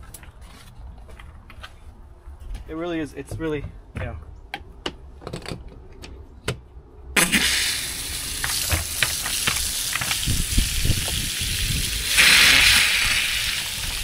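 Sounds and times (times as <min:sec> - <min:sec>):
water rushing from a hose connector: 0:07.2 - 0:14.0.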